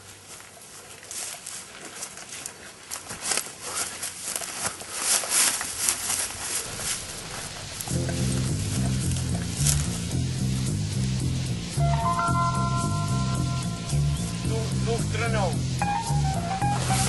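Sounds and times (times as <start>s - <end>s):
footsteps running through grass: 0.0s - 8.7s
grass swishing and rustling: 2.9s - 17.0s.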